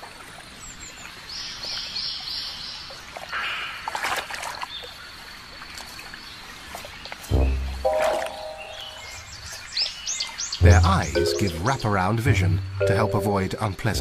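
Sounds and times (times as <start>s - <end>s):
water splash: 3.2s - 4.9s, 7.2s - 9.2s
bird chirping: 7.3s - 13.4s
thin high tone: 10.6s - 12.1s, 12.7s - 13.6s.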